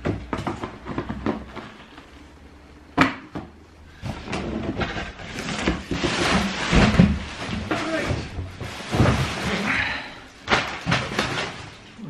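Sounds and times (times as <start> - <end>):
cardboard rustling and scraping: 3.9 - 10.0.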